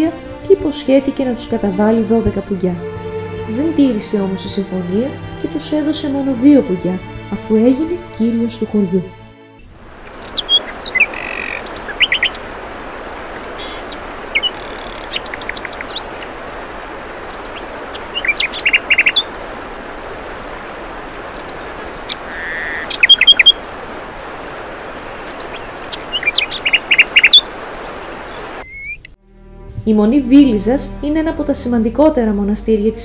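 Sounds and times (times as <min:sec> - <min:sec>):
songbirds chirping: 0:00.0 - 0:29.2
steady hiss: 0:09.6 - 0:29.1.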